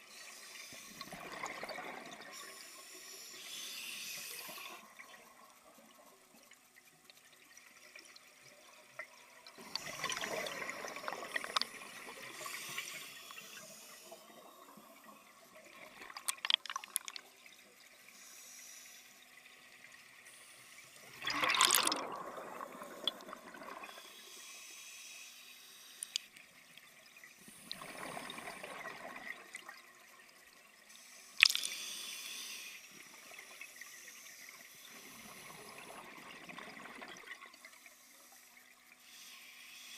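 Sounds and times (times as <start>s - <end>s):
exhaled air bubbling: 0.8s - 2.5s, 8.9s - 13.0s, 13.7s - 17.4s, 21.0s - 24.2s, 27.4s - 30.0s
regulator inhalation hiss: 2.4s - 4.8s, 12.2s - 14.8s, 18.0s - 19.2s, 23.9s - 26.3s, 30.9s - 35.7s, 37.8s - 39.9s.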